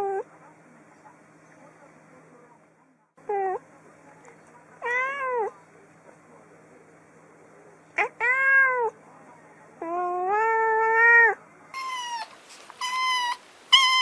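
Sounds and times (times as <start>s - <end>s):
cat meowing: 4.8s - 5.5s, 8.0s - 8.9s, 9.8s - 14.0s.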